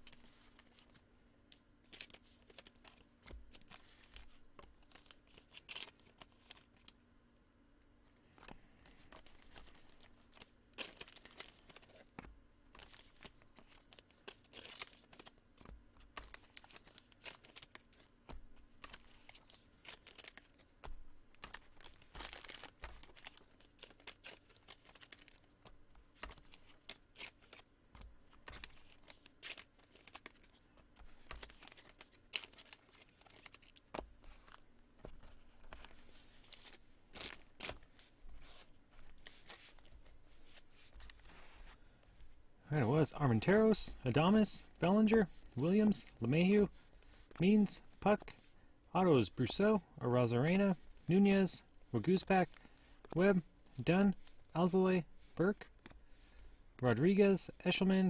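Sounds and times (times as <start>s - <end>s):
packaging crinkling and rustling: 1.8s - 7.0s, 8.3s - 42.3s.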